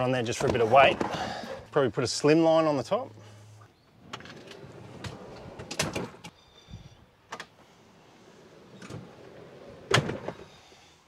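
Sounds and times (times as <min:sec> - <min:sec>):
metal slider rolling rumble: 0:04.0 - 0:06.3.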